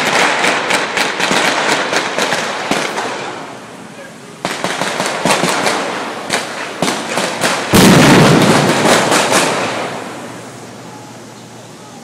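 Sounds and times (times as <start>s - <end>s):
gunfire volley echoing: 0.0s - 3.4s, 4.4s - 10.0s
gunshots: 0.0s - 3.4s, 4.4s - 10.0s.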